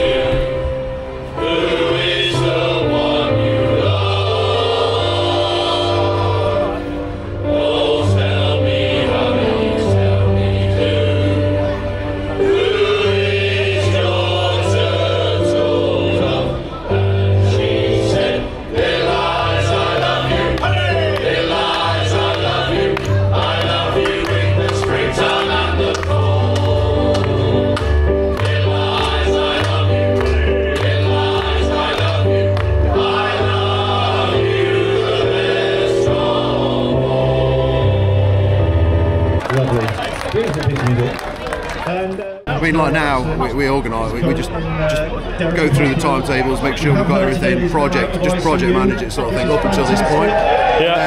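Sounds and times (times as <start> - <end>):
male voice choir singing: 0.0 - 11.8, 12.4 - 38.8.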